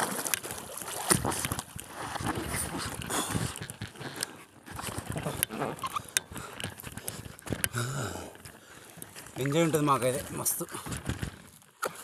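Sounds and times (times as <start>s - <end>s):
water splashing: 0.0s - 4.1s
man breathing hard: 7.7s - 8.9s.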